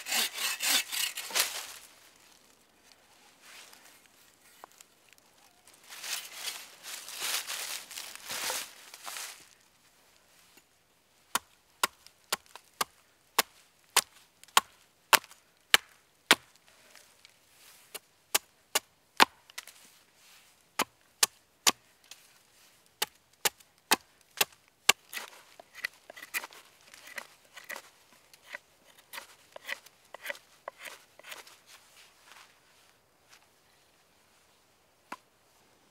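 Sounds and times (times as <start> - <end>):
hatchet chopping wood: 11.4 - 16.5.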